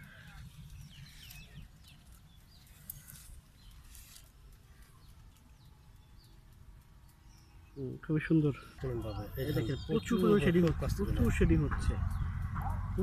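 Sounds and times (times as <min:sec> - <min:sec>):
distant bird calls: 0:00.0 - 0:13.0
light rustling: 0:00.1 - 0:05.6
steady low rumble: 0:08.6 - 0:13.0.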